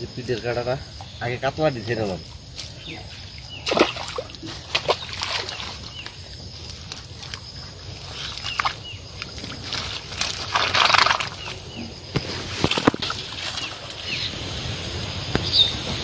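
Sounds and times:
slaps and small splashes: 2.4 - 2.8, 3.5 - 14.0
fish thrashing in a net: 3.6 - 6.2, 6.8 - 11.8, 12.4 - 14.1
net and grass rustling: 3.6 - 15.2.

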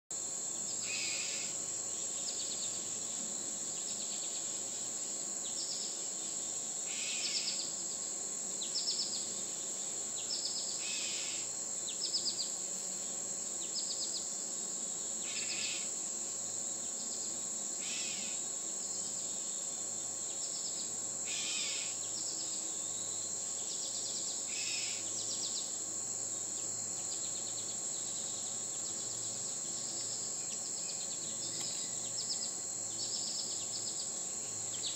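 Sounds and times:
insects droning: 0.1 - 34.9.

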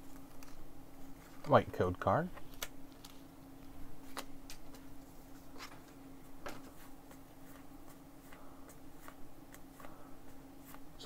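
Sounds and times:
steady low hum: 0.0 - 11.0
trading cards clicking and flipping: 0.1 - 0.6, 2.4 - 3.3, 4.0 - 4.9, 5.5 - 10.9.

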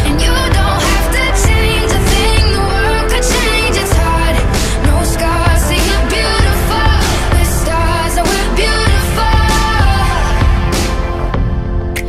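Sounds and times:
pop music: 0.0 - 12.0.

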